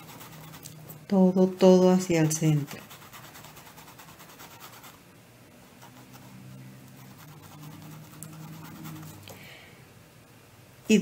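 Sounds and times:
paintbrush scratching on fabric: 0.0 - 0.7, 1.6 - 5.0, 5.7 - 9.2
low faint hum: 0.0 - 11.0.

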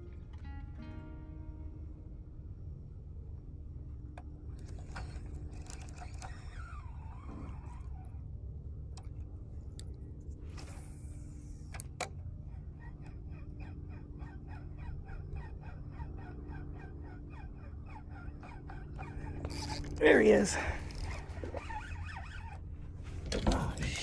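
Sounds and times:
low steady rumble: 0.0 - 24.0
fishing reel ticking: 4.6 - 7.8, 16.8 - 22.6.

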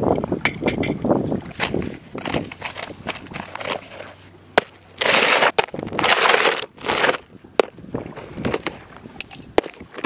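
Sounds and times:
blade cutting cardboard box: 5.0 - 7.3.

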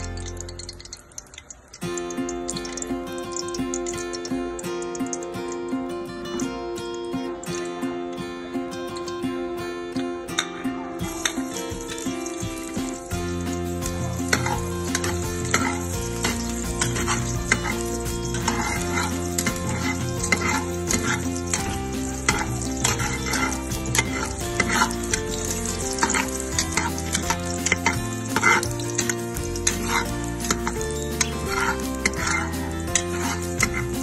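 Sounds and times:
onion sizzling in hot oil: 0.0 - 9.6, 10.2 - 34.0
background music: 0.0 - 34.0
ladle scraping a pot: 13.4 - 34.0.

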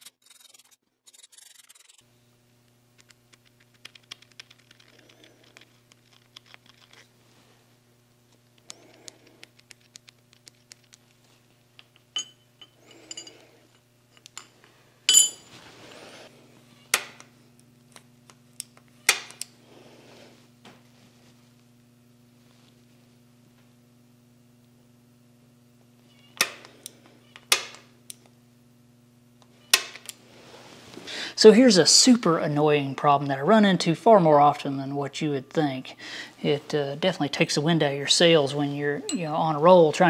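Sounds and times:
low steady hum: 0.0 - 40.0
metal tools clinking on cast iron: 12.2 - 13.4, 15.1 - 15.5, 39.1 - 39.6.

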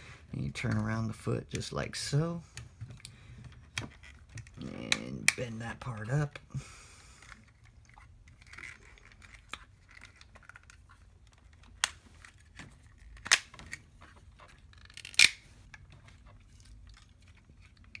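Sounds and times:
plastic toy parts clicking: 14.4 - 15.8.

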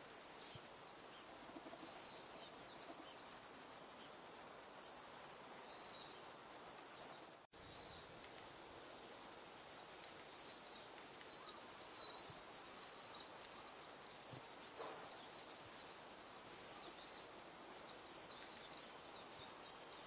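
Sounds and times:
faint outdoor background noise: 0.0 - 20.0
birds chirping: 10.0 - 20.0.

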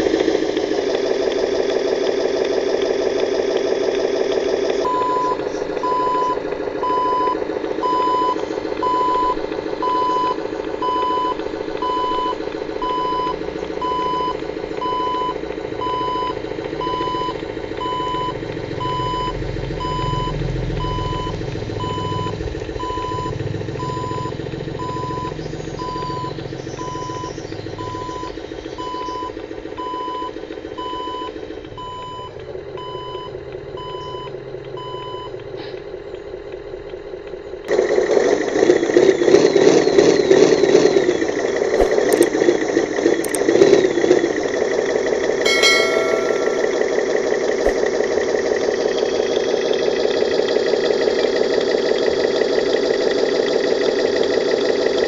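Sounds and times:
engine running: 0.0 - 45.6
reversing alarm beeping: 4.8 - 35.3, 45.5 - 47.2.

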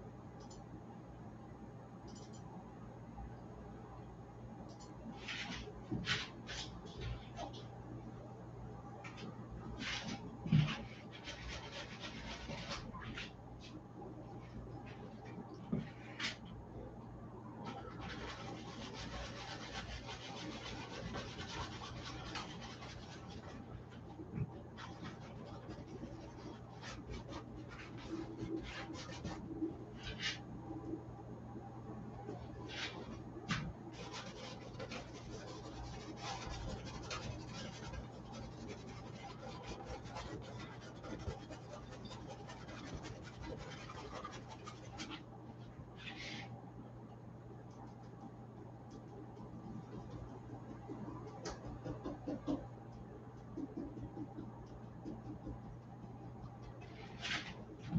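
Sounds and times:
steady low hum: 0.0 - 57.9
paintbrush scratching on canvas: 9.8 - 13.8, 17.6 - 30.4, 32.3 - 45.3, 56.4 - 57.9.

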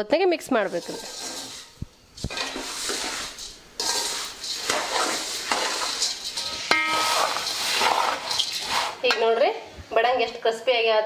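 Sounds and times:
metal spatula scraping pot: 0.4 - 9.4
puffed rice rustling: 0.6 - 9.1.

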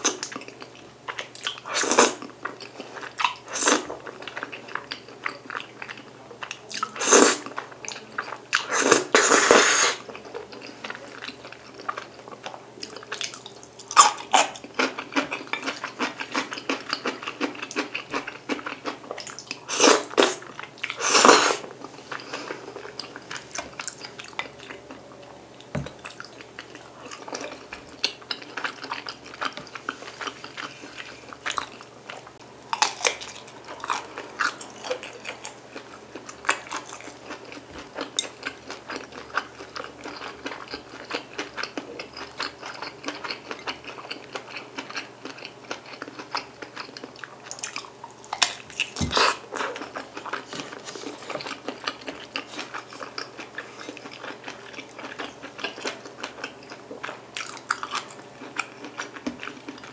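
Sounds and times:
chewing and biting food: 10.1 - 21.0, 25.7 - 59.9.

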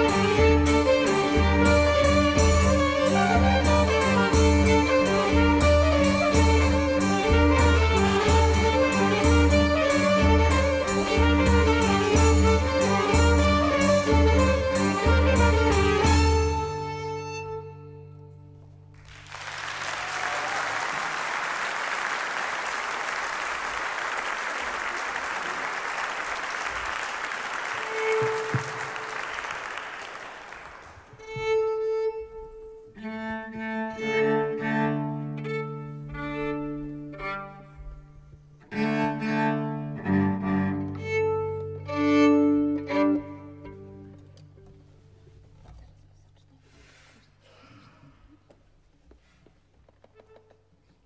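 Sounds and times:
fiddles bass and accordion: 0.0 - 18.5, 31.3 - 44.6
applause: 19.0 - 31.2.

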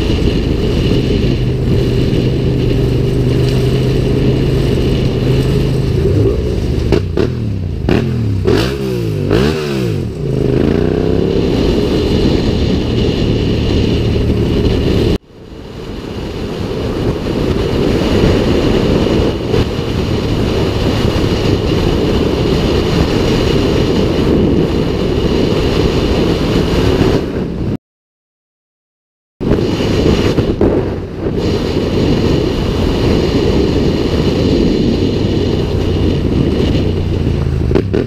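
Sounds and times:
motorcycle engine revving: 0.0 - 15.2, 15.9 - 27.7, 29.4 - 38.0
wind rush over microphone: 0.0 - 27.8, 29.4 - 38.0.

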